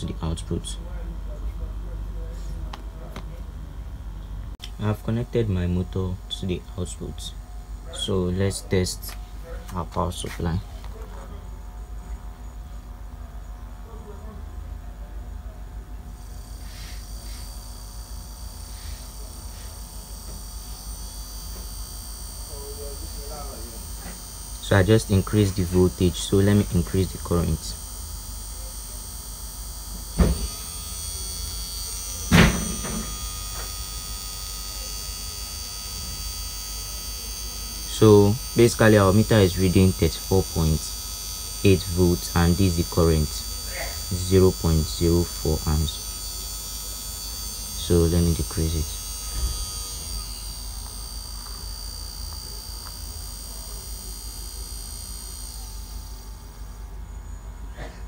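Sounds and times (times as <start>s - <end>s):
low mains hum: 0.0s - 58.0s
electric motor whine: 16.0s - 57.9s.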